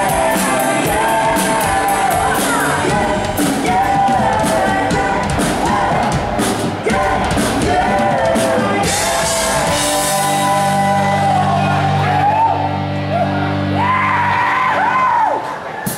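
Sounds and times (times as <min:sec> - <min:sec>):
drums hitting: 0:00.0 - 0:11.1
voices singing: 0:00.0 - 0:12.7
live band playing: 0:00.0 - 0:15.9.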